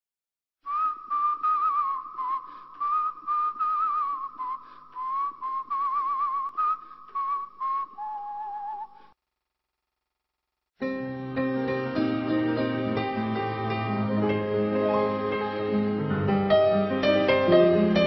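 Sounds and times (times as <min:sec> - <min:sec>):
person whistling a melody: 0:00.7 - 0:09.1.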